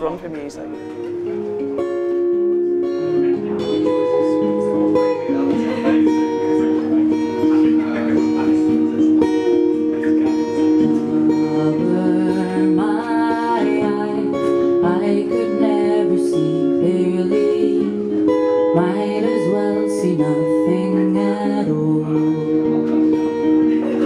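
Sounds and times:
guitar chords: 0.0 - 24.0
woman singing into microphone: 11.2 - 23.5.

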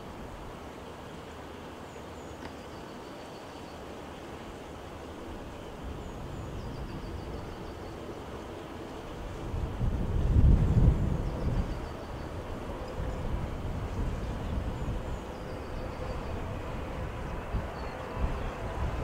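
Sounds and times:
distant jet rumble: 7.2 - 19.0.

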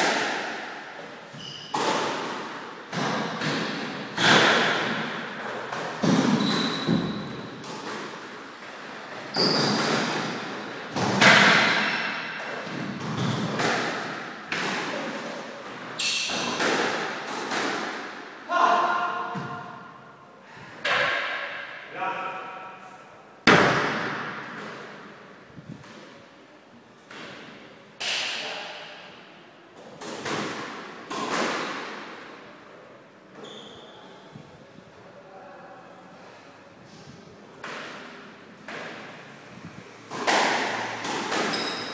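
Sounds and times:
shoes squeaking on wooden floor: 1.3 - 1.9, 6.0 - 7.6, 9.2 - 10.0, 41.5 - 41.9
squash ball cracking off rackets: 40.1 - 41.9.

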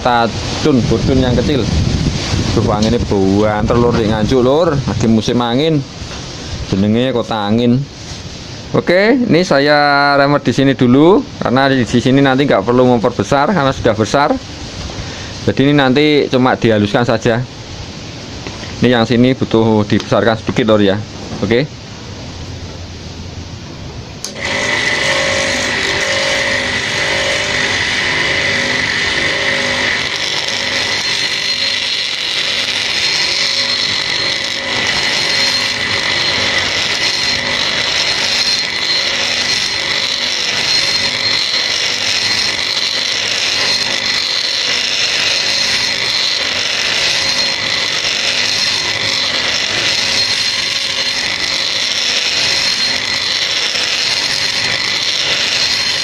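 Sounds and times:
rotary grinder whining: 24.2 - 56.0.

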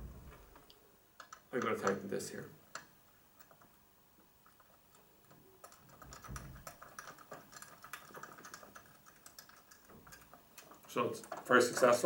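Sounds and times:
faint clicking and tapping: 0.0 - 12.0.

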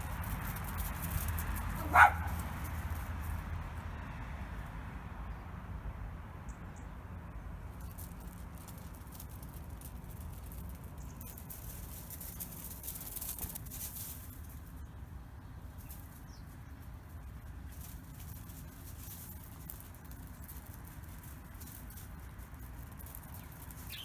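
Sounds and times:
dog paws scampering on gravel: 0.0 - 3.8, 7.7 - 24.0.

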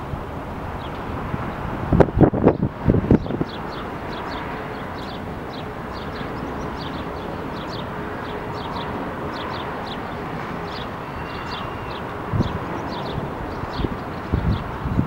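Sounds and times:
distant traffic: 0.0 - 15.0
wind: 0.0 - 15.0
small birds chirping: 2.4 - 15.0.

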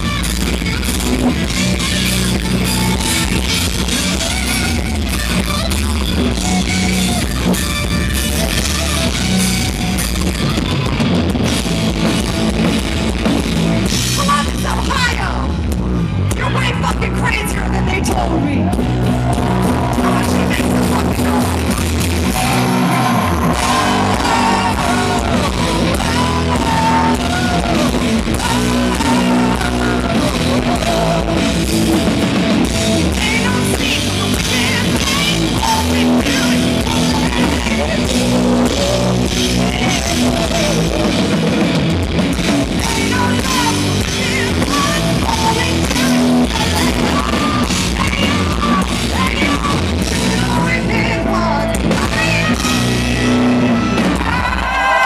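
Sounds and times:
distorted electric guitars: 0.0 - 55.0
drum kit: 0.0 - 55.0
hard rock band playing: 0.0 - 55.0
woman singing lead vocal: 23.0 - 31.8, 33.0 - 41.2, 42.6 - 54.4.

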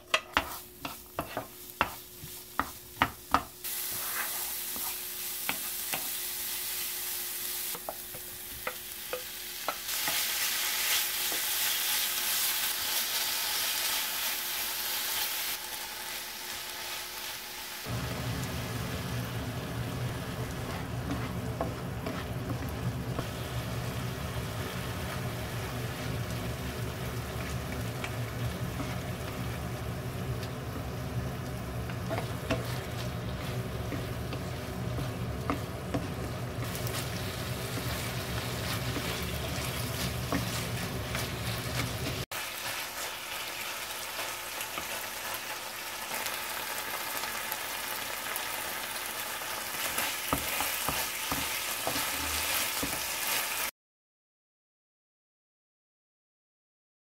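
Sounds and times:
wooden spoon tapping and scraping pan: 0.0 - 3.6, 4.2 - 6.2, 7.7 - 10.2, 20.6 - 23.3, 31.5 - 42.2, 49.9 - 53.1
meat sizzling in a frying pan: 0.0 - 53.7.

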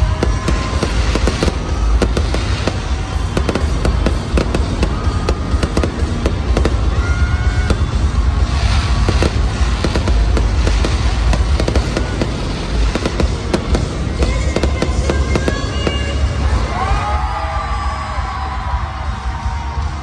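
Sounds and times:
fireworks cracking and banging: 0.0 - 20.0
music playing: 0.0 - 20.0.

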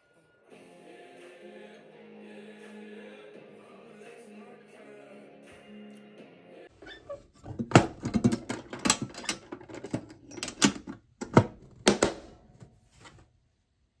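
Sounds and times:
metal latches snapping shut: 7.4 - 12.4.

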